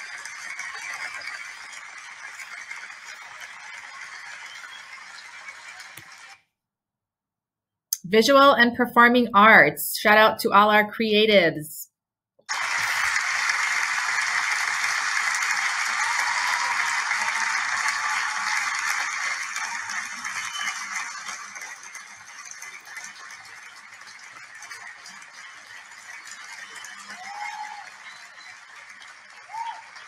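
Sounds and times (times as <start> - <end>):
crowd applause: 0.0 - 6.4, 12.5 - 30.0.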